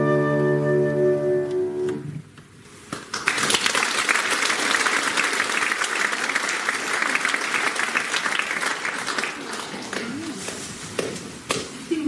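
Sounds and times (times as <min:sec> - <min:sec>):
audience applauding: 0:02.9 - 0:11.2.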